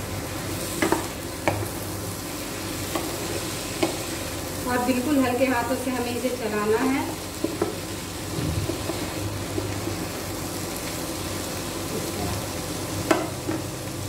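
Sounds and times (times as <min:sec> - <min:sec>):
vegetables sizzling in pan: 0:00.0 - 0:14.0
spatula tapping pan: 0:00.8 - 0:01.7, 0:03.8 - 0:04.1, 0:07.4 - 0:07.8, 0:13.0 - 0:13.7.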